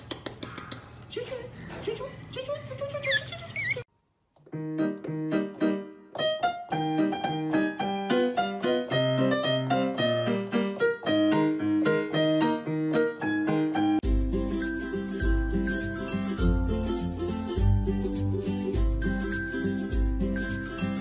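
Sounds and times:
piano music: 4.5s - 21.0s.

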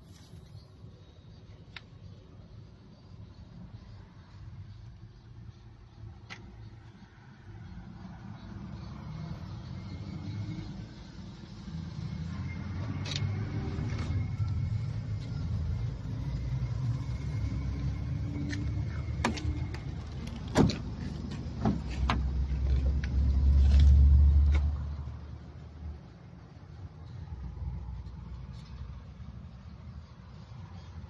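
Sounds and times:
knocks and clicks in a car: 19.2s - 23.1s.

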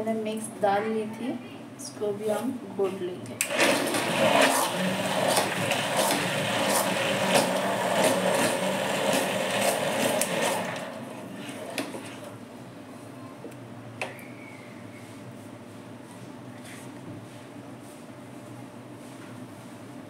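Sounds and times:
immersion blender running: 3.4s - 12.4s.

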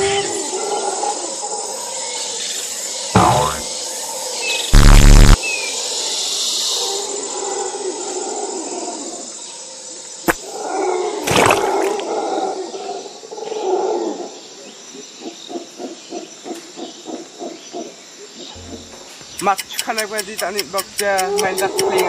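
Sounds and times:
short rhythmic grunts: 3.2s - 3.6s
sharp click: 18.6s - 22.0s.

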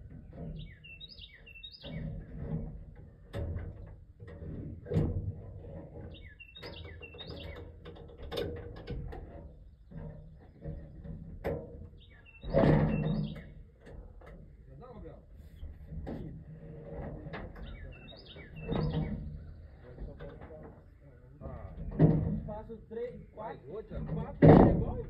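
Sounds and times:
songbird singing: 0.1s - 2.6s, 6.0s - 8.1s, 11.8s - 15.7s, 17.4s - 25.0s
knocks: 21.8s - 22.6s, 24.0s - 25.0s.

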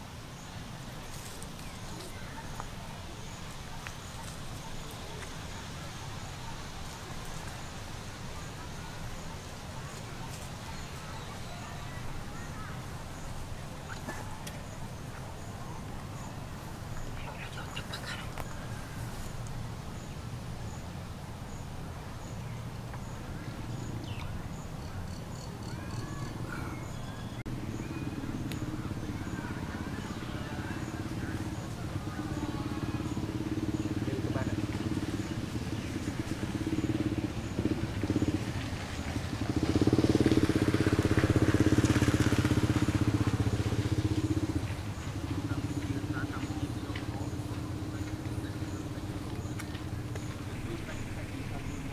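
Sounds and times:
small engine running: 29.4s - 50.9s.

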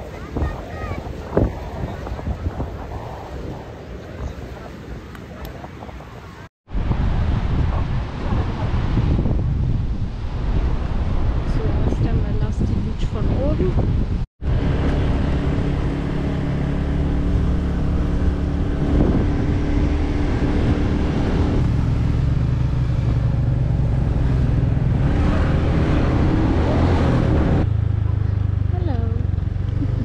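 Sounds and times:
wind noise: 0.0s - 30.0s.

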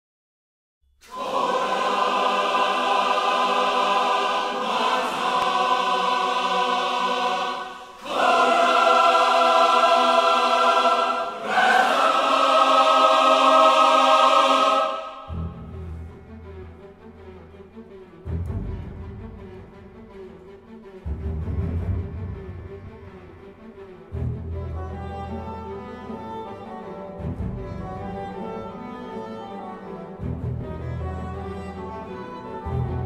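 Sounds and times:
choir singing held chords: 1.0s - 16.1s.

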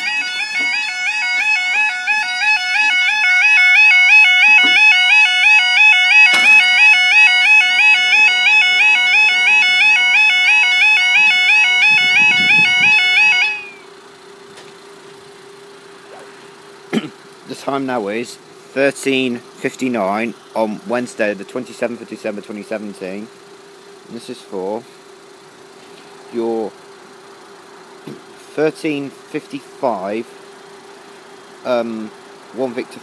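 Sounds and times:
level crossing alarm warble: 0.0s - 14.4s.

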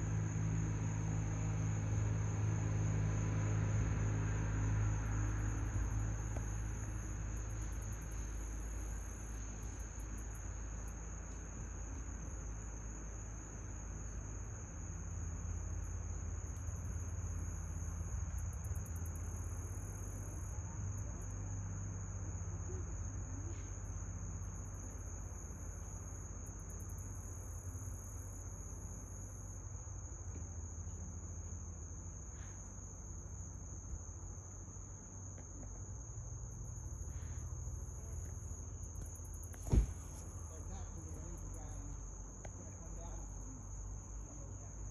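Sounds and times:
crickets trilling: 0.0s - 44.9s
insects buzzing in pulses: 0.0s - 44.9s.

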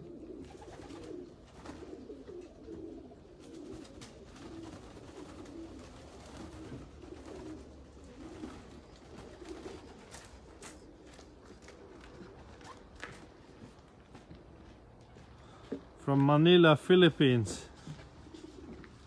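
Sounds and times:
pigeons cooing: 0.0s - 16.0s, 17.7s - 19.0s.

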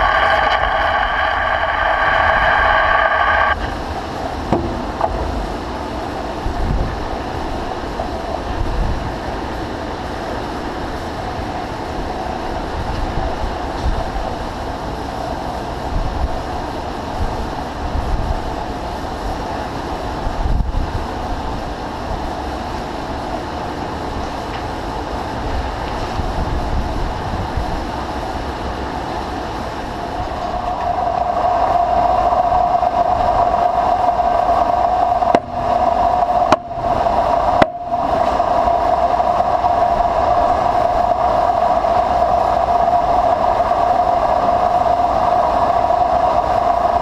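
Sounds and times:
lathe tool grinding metal: 0.0s - 3.8s
lathe rumbling: 0.0s - 8.4s, 29.1s - 47.0s.

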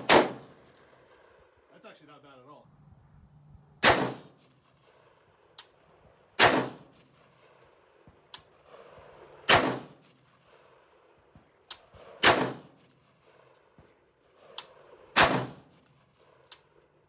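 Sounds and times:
loud gunshots with echo: 0.0s - 0.4s, 3.8s - 4.4s, 6.4s - 6.9s, 9.5s - 10.0s, 12.0s - 12.8s, 15.2s - 15.7s.

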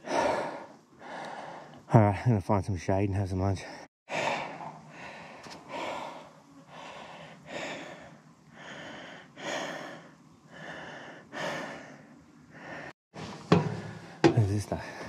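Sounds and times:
man breathing hard: 0.0s - 1.9s, 4.1s - 13.0s.

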